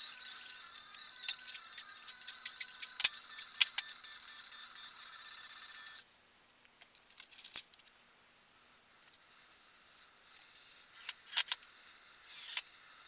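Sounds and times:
steady high hum: 0.0s - 6.4s.

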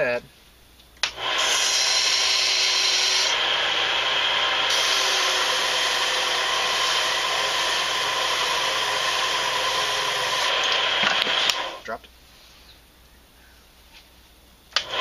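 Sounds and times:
power tool cutting cane: 1.0s - 11.8s, 14.8s - 15.0s.

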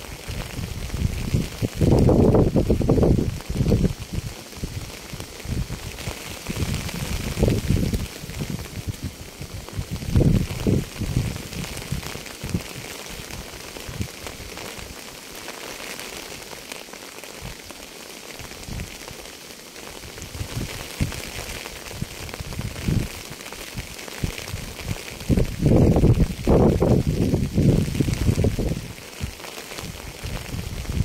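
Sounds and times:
rain falling: 0.0s - 31.0s.

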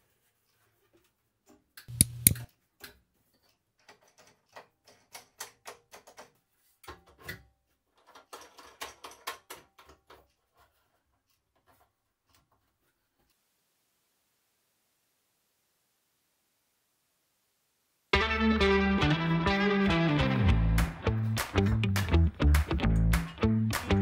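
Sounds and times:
plastic clicks and rattles: 1.8s - 10.4s.

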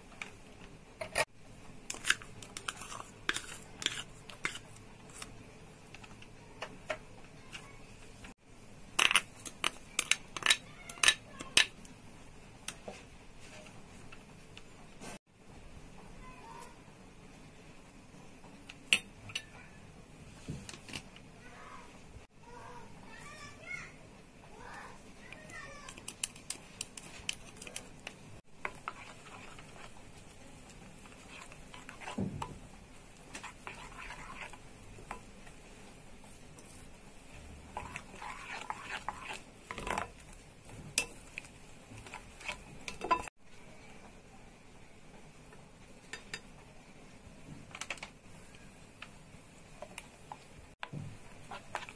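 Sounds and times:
spatula stirring batter in a bowl: 0.0s - 8.3s, 24.5s - 44.1s, 48.1s - 51.9s.

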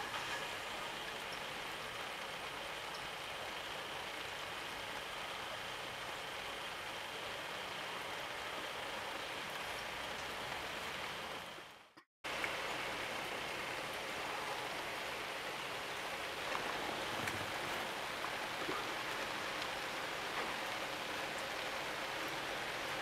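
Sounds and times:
drip-like ticks: 0.0s - 5.1s, 9.5s - 11.1s, 12.0s - 13.3s
steady rainfall: 0.0s - 23.0s.

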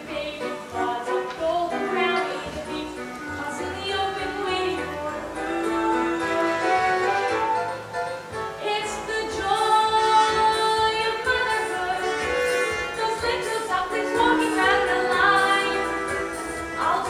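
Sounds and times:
girl singing: 0.0s - 6.2s, 8.6s - 12.1s, 12.8s - 15.9s
instrumental accompaniment: 0.0s - 17.0s.

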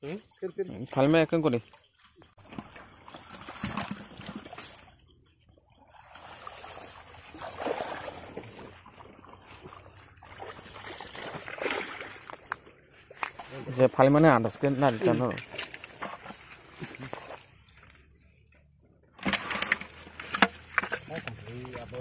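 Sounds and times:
water splashing and trickling: 0.0s - 22.0s
wet fishing net rustling: 2.4s - 5.0s, 5.9s - 13.8s, 14.7s - 18.1s, 19.2s - 22.0s.

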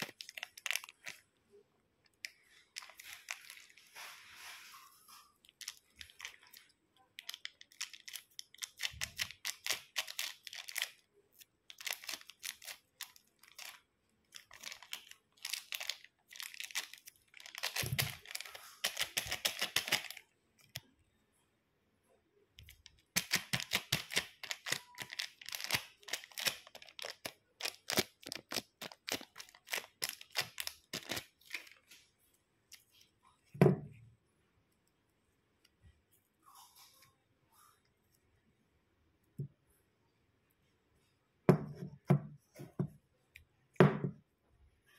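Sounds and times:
slime crackling and tearing: 11.7s - 20.2s, 22.7s - 31.8s.

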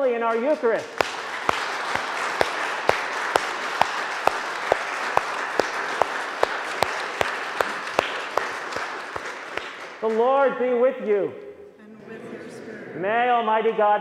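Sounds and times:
sharp close claps: 0.0s - 10.5s
congregation applauding: 0.0s - 10.6s.

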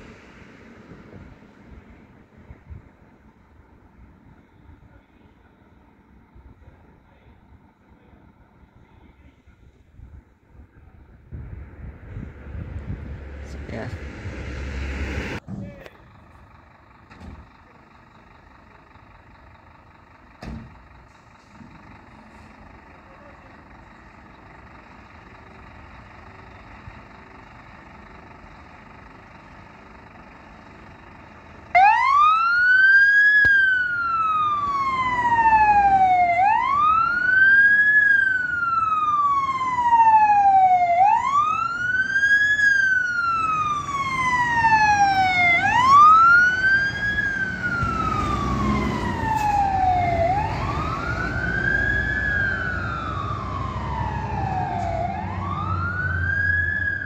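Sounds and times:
diesel engine running: 0.0s - 57.0s
fire truck siren wailing: 21.8s - 57.0s.

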